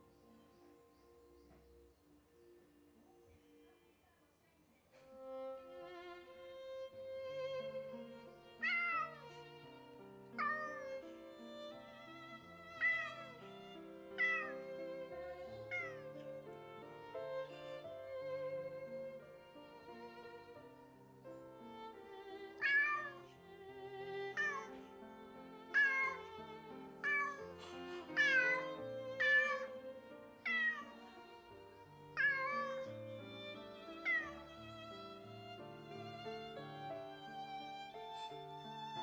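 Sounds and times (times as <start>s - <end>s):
soft violin music: 0.0s - 3.9s, 4.9s - 39.0s
cat meowing: 8.6s - 9.4s, 10.4s - 11.0s, 12.6s - 13.4s, 14.2s - 16.3s, 22.6s - 23.4s, 24.2s - 24.8s, 25.7s - 26.4s, 27.0s - 31.2s, 32.1s - 32.9s, 34.0s - 34.4s.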